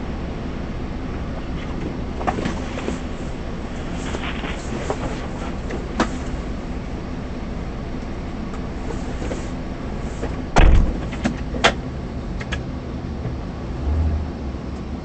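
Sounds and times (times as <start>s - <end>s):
car running inside cabin: 0.0s - 15.0s
loud heavy thump: 10.6s - 11.2s.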